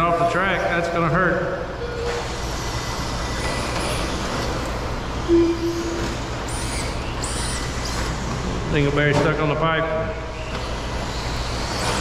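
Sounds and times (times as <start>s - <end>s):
high motor whines: 1.6s - 8.7s
rc trucks motor and tyre noise: 1.8s - 9.4s, 10.2s - 12.0s
short steady tone: 5.3s - 6.2s.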